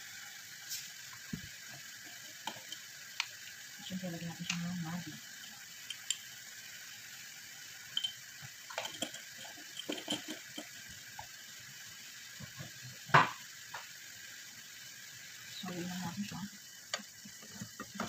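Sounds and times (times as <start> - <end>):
food sizzling in a saucepan: 0.0 - 18.0
kitchen clicks and taps: 5.9 - 6.2, 8.7 - 11.3.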